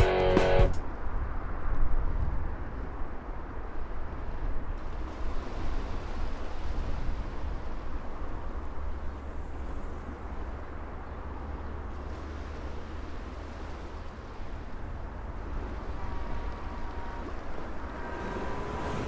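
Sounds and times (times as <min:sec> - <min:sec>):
distant traffic: 0:00.0 - 0:19.0
wind rumble and hiss: 0:00.8 - 0:19.0.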